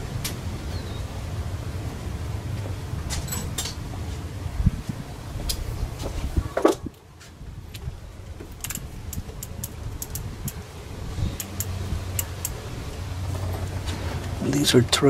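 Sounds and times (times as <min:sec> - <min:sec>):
low steady rumble: 0:00.0 - 0:15.0
metal tools clinking: 0:03.1 - 0:03.8.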